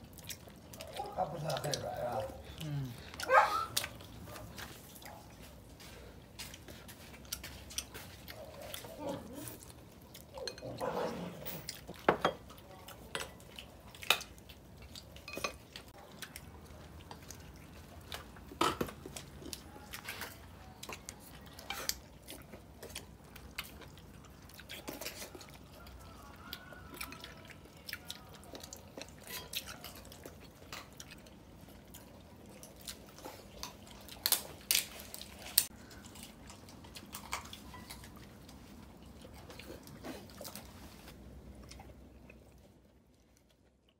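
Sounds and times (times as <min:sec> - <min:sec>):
people chewing: 0:00.0 - 0:43.9
chopsticks clinking on bowls: 0:10.3 - 0:10.8, 0:15.2 - 0:15.8, 0:29.3 - 0:30.0.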